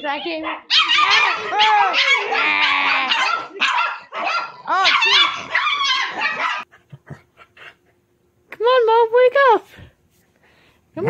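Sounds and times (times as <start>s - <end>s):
small dog barking: 0.3s - 6.7s.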